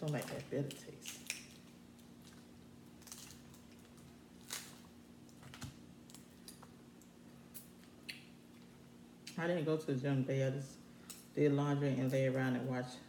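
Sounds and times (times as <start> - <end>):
crab shells cracking: 0.0 - 8.3
low steady hum: 0.0 - 13.0.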